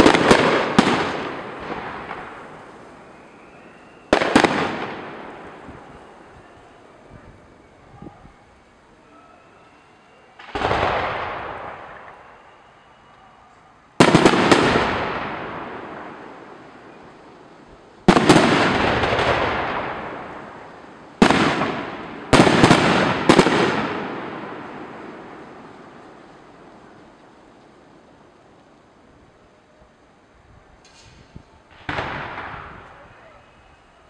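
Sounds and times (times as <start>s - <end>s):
firework shells bursting: 30.8s - 33.0s.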